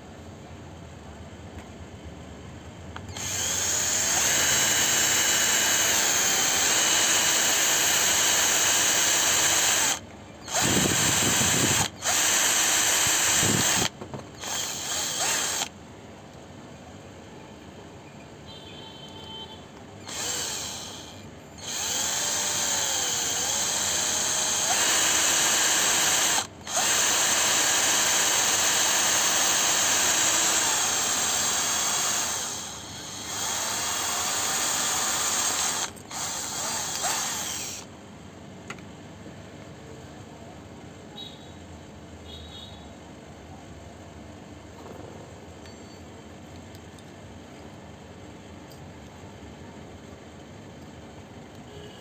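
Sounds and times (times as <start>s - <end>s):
power drill boring metal: 3.1s - 15.7s, 20.0s - 37.9s.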